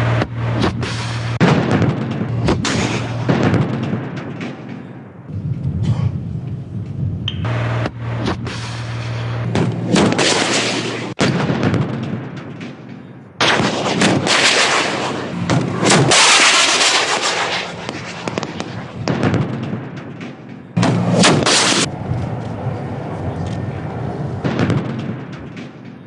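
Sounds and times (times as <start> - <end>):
shells exploding: 0.0 - 5.0, 7.9 - 21.9, 24.4 - 26.0
gunfire blasts: 0.0 - 5.3, 7.4 - 23.0, 24.4 - 26.0.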